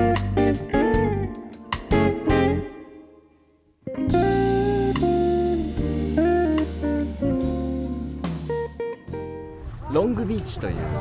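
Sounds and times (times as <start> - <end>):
steady bass line: 0.0 - 2.7, 4.1 - 9.6
guitar chords: 0.0 - 9.6.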